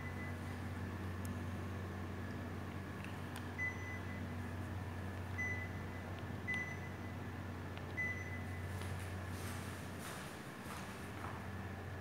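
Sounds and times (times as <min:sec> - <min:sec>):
air conditioner short high beeps: 0:00.0 - 0:01.2, 0:03.5 - 0:10.4
steady low hum: 0:00.0 - 0:12.0.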